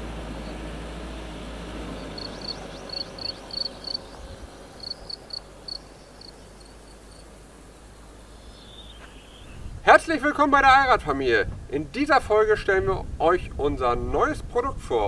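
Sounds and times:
low vehicle rumble: 0.0 - 11.8
insect chirping: 1.8 - 9.8.

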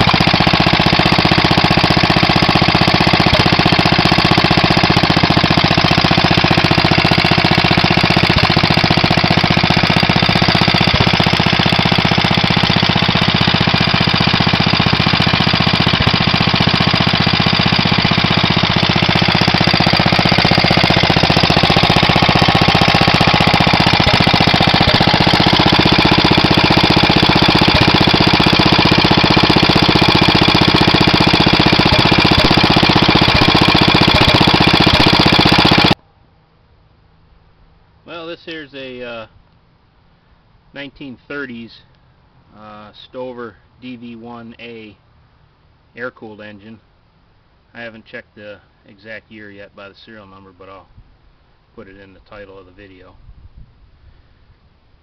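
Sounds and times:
single-cylinder engine running: 0.0 - 36.0.

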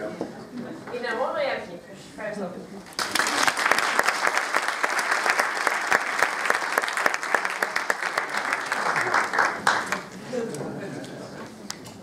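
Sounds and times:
audience applauding: 2.9 - 10.2.

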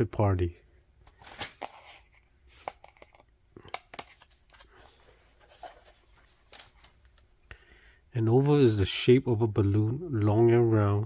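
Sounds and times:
cardboard book pages rustling: 1.0 - 7.3.

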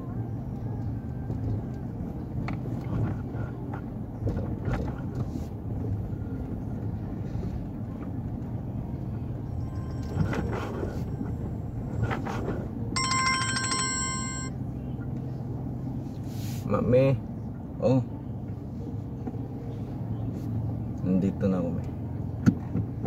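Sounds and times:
engine and road hum: 0.0 - 23.0.

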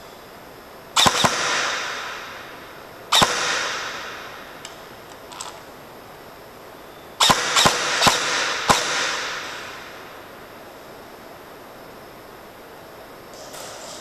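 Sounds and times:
airsoft gun shots echoing: 1.0 - 4.9, 7.2 - 10.2.

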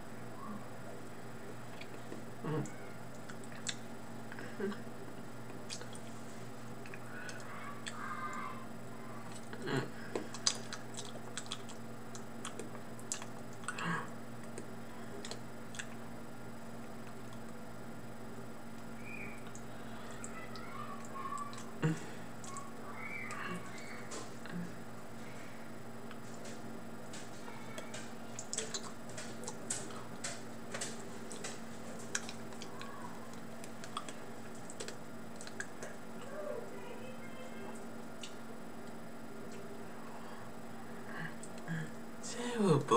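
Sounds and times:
steady low hum: 0.0 - 42.9
eating mouth sounds: 5.5 - 6.1, 9.2 - 16.0, 27.6 - 36.3.

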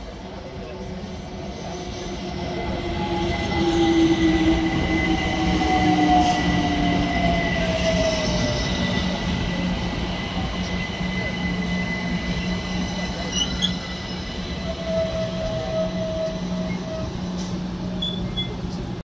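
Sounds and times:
train wheels rumbling: 0.0 - 19.0
thin high squeal: 11.2 - 18.6.

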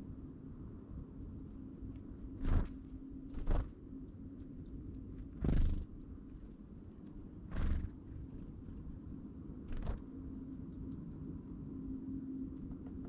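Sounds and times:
steady low hum: 0.0 - 13.0
bird wings fluttering: 2.4 - 3.8, 5.1 - 5.9, 7.5 - 8.4, 9.7 - 10.1.

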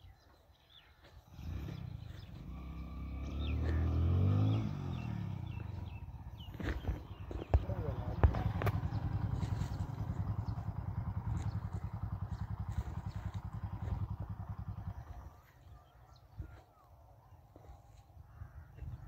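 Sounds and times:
small engine puttering: 1.3 - 15.7.

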